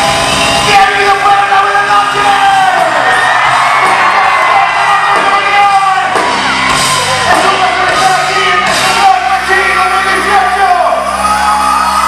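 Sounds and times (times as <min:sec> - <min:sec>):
drums: 0:00.0 - 0:12.0.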